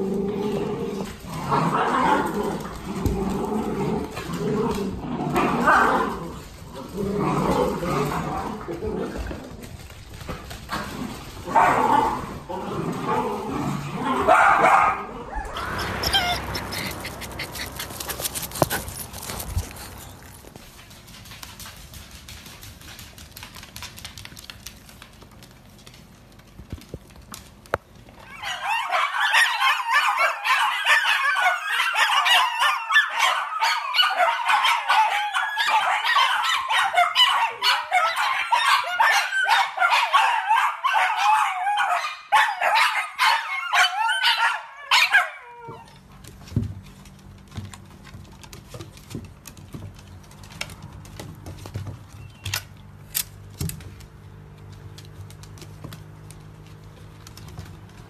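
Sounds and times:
dogs yipping and howling: 11.4s - 20.4s, 28.2s - 46.3s.

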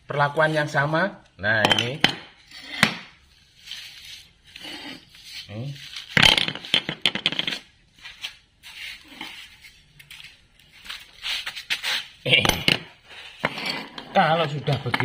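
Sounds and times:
metal parts clanking on concrete: 6.1s - 7.6s, 12.3s - 15.0s.

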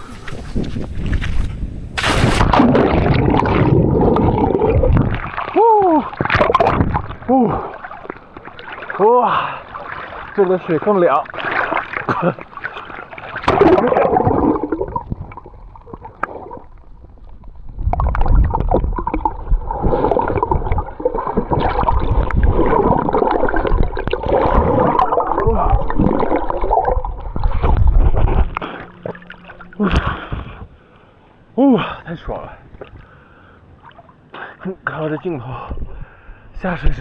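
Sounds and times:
water splash: 1.9s - 16.7s, 17.8s - 30.6s
underwater gurgling and bubbling: 2.4s - 10.4s, 11.2s - 30.7s.

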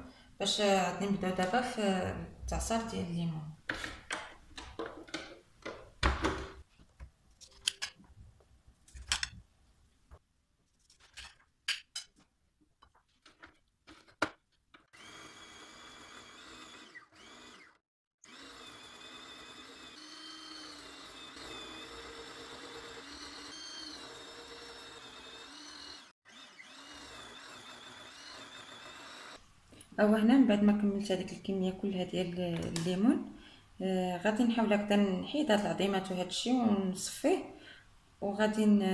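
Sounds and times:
electric motor running: 14.9s - 29.4s.

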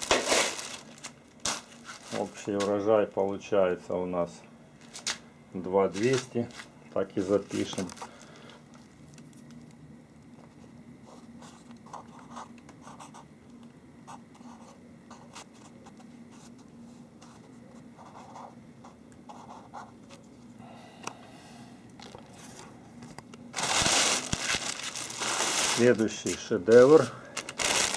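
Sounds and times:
faint low hum: 0.5s - 27.9s
marker pen scratching on paper: 11.1s - 13.2s, 14.1s - 20.0s.

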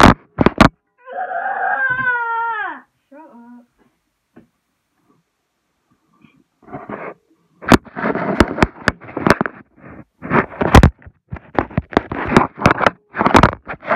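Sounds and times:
microphone handling knocks and clicks: 0.0s - 0.8s, 6.6s - 13.9s
scraping and rustling: 6.0s - 13.9s.

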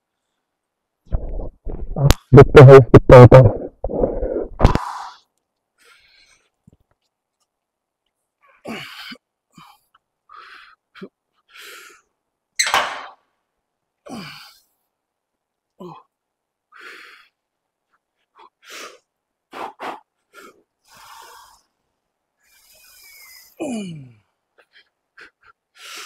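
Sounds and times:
man breathing hard: 8.6s - 12.2s, 16.7s - 17.4s, 18.2s - 21.8s, 22.4s - 26.0s
man grunting: 23.6s - 24.2s.

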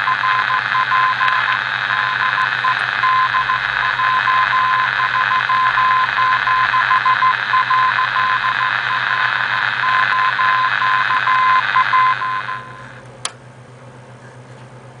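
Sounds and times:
morse code tone: 0.0s - 13.0s
radio band noise hiss: 0.0s - 13.0s
low steady hum: 0.0s - 15.0s.

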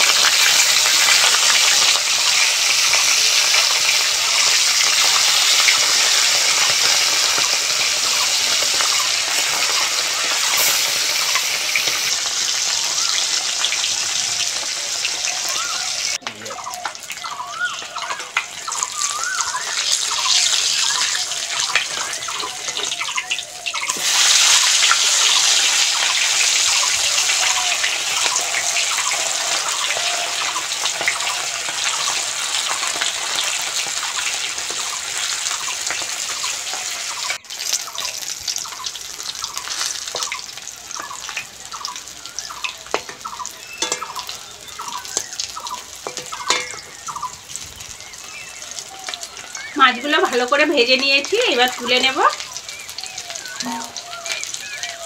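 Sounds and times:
fish sizzling in hot oil: 0.0s - 55.0s.

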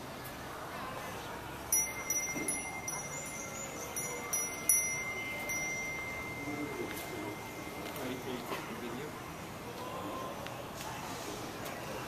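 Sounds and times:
small bells tinkling: 1.6s - 9.4s
steady high tone: 1.6s - 9.6s.

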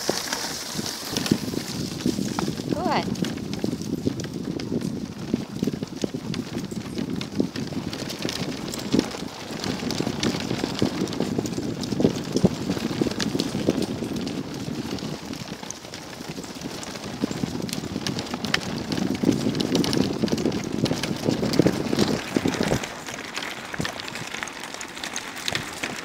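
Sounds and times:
dogs' paws pattering: 0.0s - 26.0s
wheels rumbling on gravel: 0.0s - 26.0s
frame rattling: 6.6s - 26.0s.

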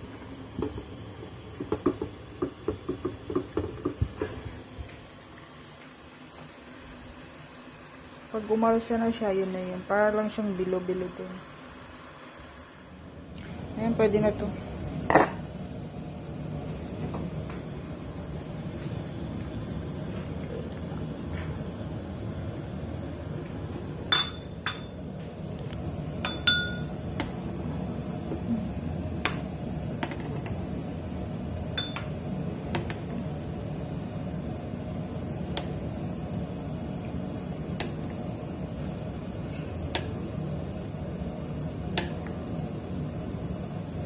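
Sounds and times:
spoon clinking against metal pot: 26.2s - 26.9s.

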